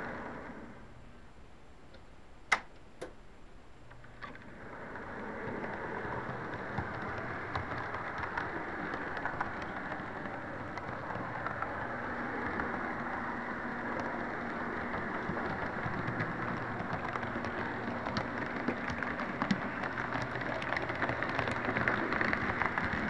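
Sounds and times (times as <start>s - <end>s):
sharp clicks: 1.9s - 3.2s
model train wheels rattling on rails: 4.0s - 23.0s.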